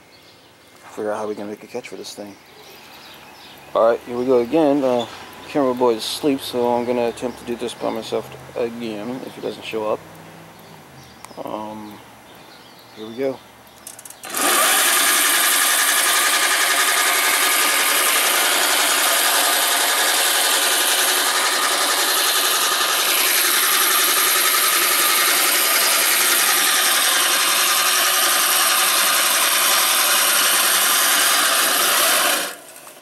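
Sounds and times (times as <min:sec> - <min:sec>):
electric lawn mower whining: 0:13.8 - 0:33.0.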